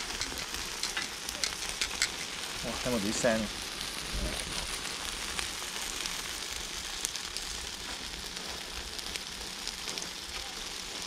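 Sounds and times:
fat crackling: 0:00.0 - 0:11.0
meat sizzling on a grill: 0:00.0 - 0:11.0.

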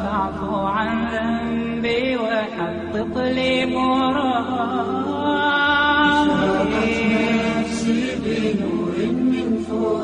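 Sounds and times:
voices singing without instruments: 0:03.8 - 0:10.0.

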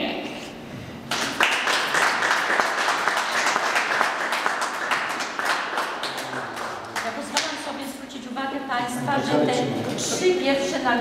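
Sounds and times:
audience applauding: 0:01.1 - 0:07.6.

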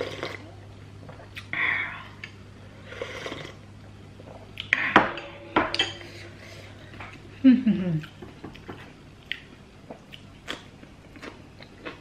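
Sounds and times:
person slurping soup: 0:02.9 - 0:03.6
ceramic bowl and spoon clinking: 0:05.2 - 0:06.2.

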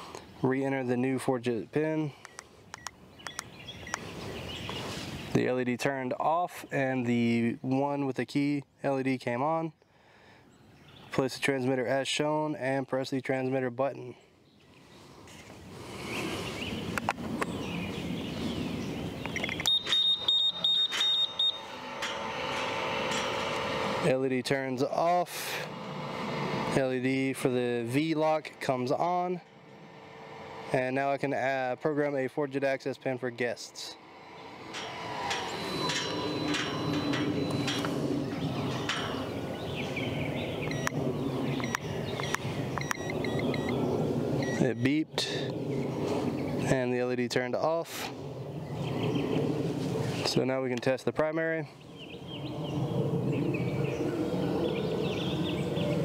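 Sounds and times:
gate motor humming: 0:19.1 - 0:32.1, 0:33.1 - 0:44.7
high electronic beeps: 0:19.4 - 0:21.8, 0:35.5 - 0:37.8, 0:40.7 - 0:41.0, 0:41.6 - 0:43.8, 0:44.4 - 0:44.9.

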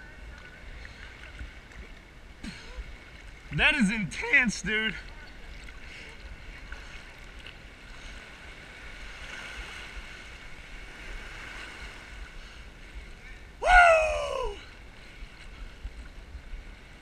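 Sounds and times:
small waves lapping: 0:00.0 - 0:17.0
person yelling: 0:13.6 - 0:14.6.

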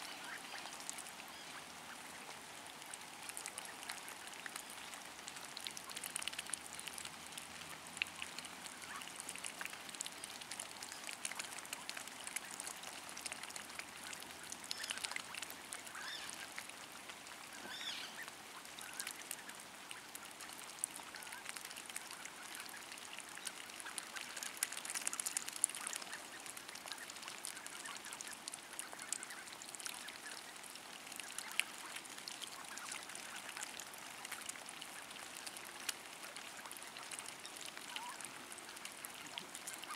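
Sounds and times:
duck bills dabbling in water: 0:00.0 - 0:39.9.

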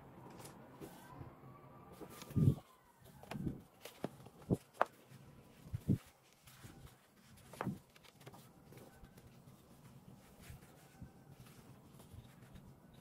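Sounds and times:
soft paper handling: 0:00.2 - 0:01.2, 0:01.9 - 0:13.0.

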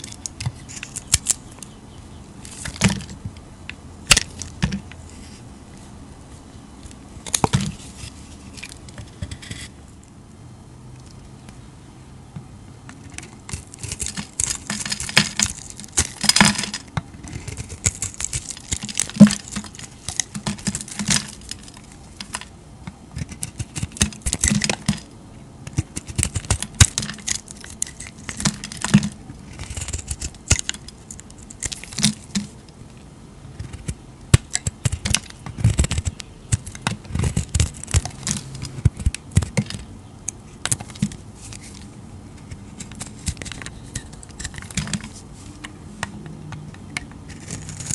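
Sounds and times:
knife blade shaving soap: 0:13.2 - 0:22.4, 0:25.7 - 0:32.2, 0:47.3 - 0:47.9.

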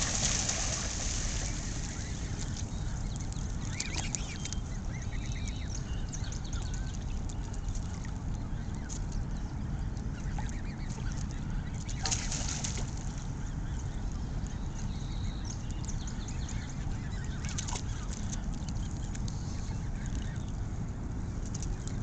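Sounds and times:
geese honking: 0:00.0 - 0:03.1
steady low rumble: 0:00.0 - 0:22.0.

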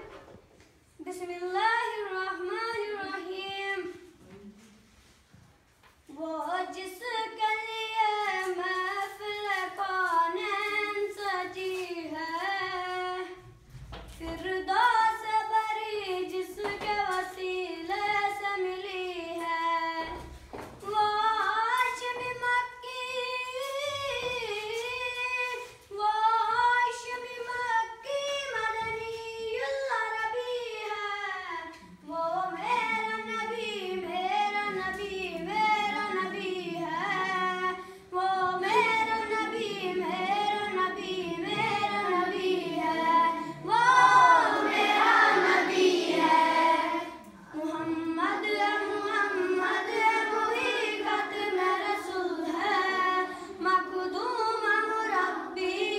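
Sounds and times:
boy singing devotional song: 0:00.9 - 0:04.4, 0:05.9 - 0:55.9
voices singing along: 0:32.4 - 0:55.9.

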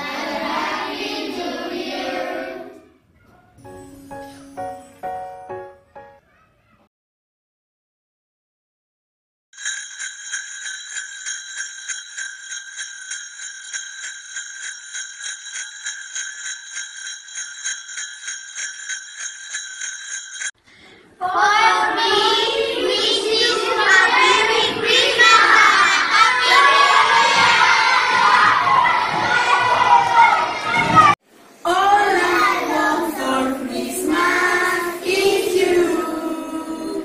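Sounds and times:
children shouting and cheering: 0:00.0 - 0:03.6, 0:05.6 - 0:06.9, 0:21.2 - 0:37.0
jingle bells shaken: 0:09.6 - 0:20.6.

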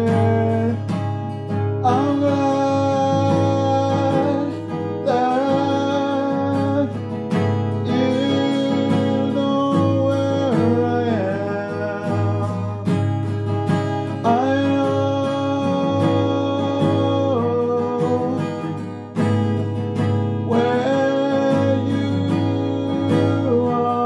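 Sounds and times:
acoustic guitar: 0:00.0 - 0:24.0
person singing long notes: 0:01.8 - 0:07.0, 0:07.8 - 0:12.9, 0:14.2 - 0:18.8, 0:20.5 - 0:24.0.

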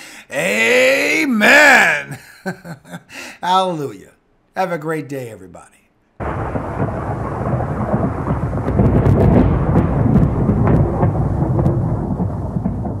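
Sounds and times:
rolling thunder: 0:06.2 - 0:13.0.

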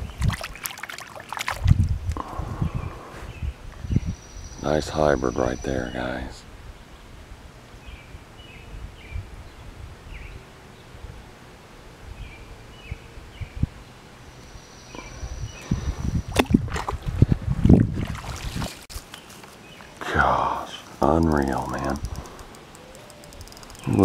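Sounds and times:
wind rumbling on microphone: 0:00.0 - 0:00.7, 0:01.4 - 0:14.0, 0:14.9 - 0:19.0, 0:20.0 - 0:24.0
bird chirping: 0:02.7 - 0:07.1, 0:14.3 - 0:16.3, 0:19.1 - 0:24.0.

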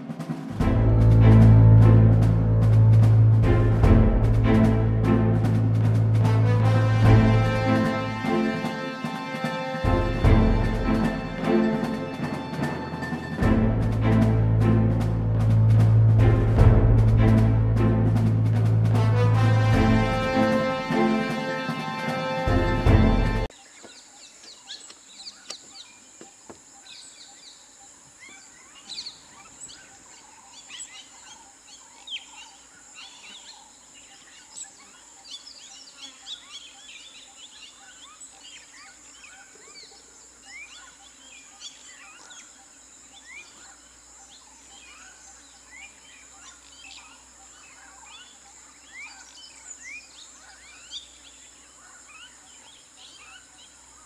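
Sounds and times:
birds chirping and whistling: 0:28.2 - 0:54.0.

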